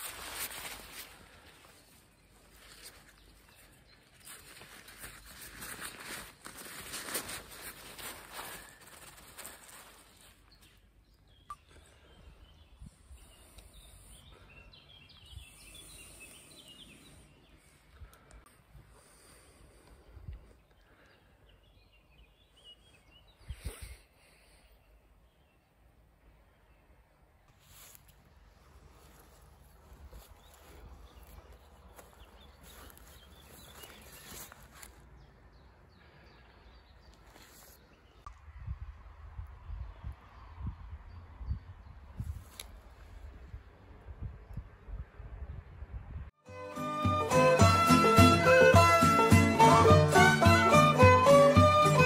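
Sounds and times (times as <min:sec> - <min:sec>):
hammock fabric rustling: 0:00.0 - 0:10.9, 0:27.5 - 0:35.1
bird chirping: 0:08.4 - 0:18.2.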